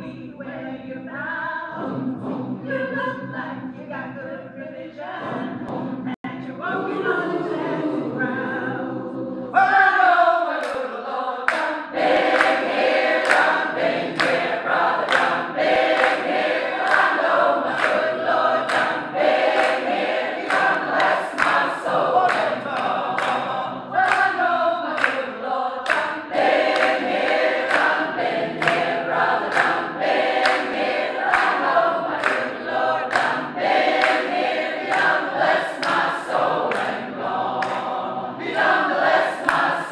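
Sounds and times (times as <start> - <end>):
gospel choir singing a cappella: 0.0 - 39.9
hand-clapping on the beat: 10.6 - 39.9.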